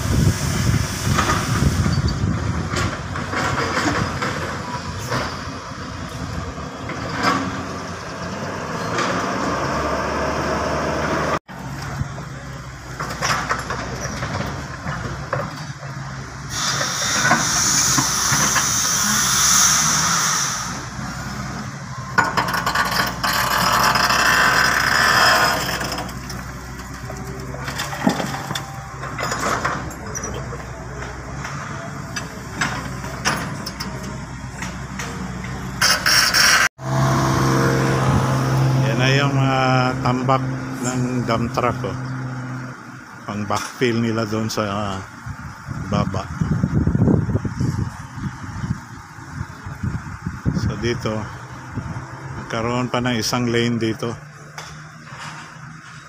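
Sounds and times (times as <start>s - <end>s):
loud hiss: 0.0s - 2.4s, 16.4s - 21.5s
heavy diesel engines running: 0.0s - 56.0s.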